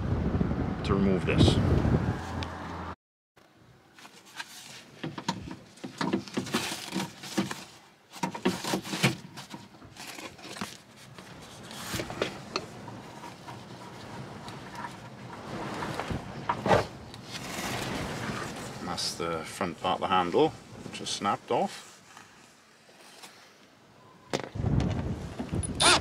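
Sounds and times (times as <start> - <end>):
soft handling sounds: 3.9 - 19.2, 19.8 - 23.8
foam barrier crackling as peeled: 17.2 - 20.3.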